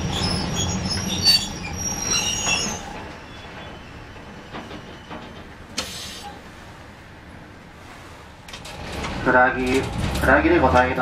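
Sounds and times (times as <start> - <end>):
wheels squealing on rails: 0.0 - 6.7
tram rumbling: 0.0 - 11.0.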